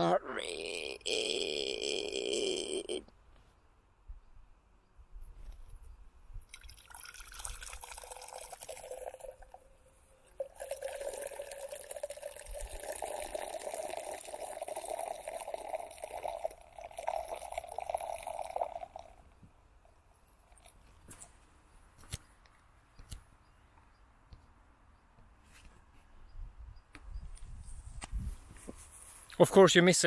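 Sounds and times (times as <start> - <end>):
urine stream splashing in glass: 6.5 - 9.5.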